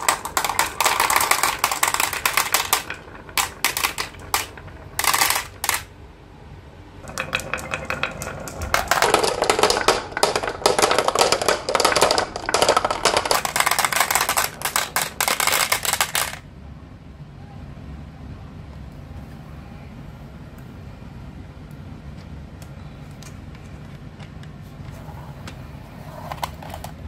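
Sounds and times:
glass marbles clattering on track: 0:00.0 - 0:05.9, 0:07.0 - 0:16.4.

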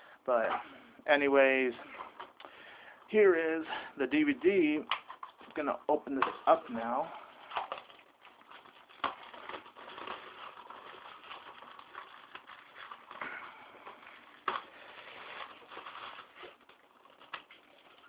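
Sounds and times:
plastic wrap tearing and crinkling: 0:04.6 - 0:18.0.

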